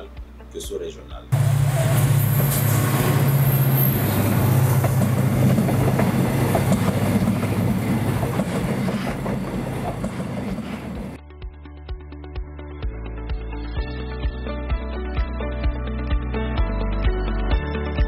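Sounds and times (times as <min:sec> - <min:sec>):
music: 0:00.0 - 0:01.4, 0:11.2 - 0:18.0
diesel locomotive engine drone: 0:01.3 - 0:11.2
train wheels clattering over rails: 0:01.4 - 0:11.2.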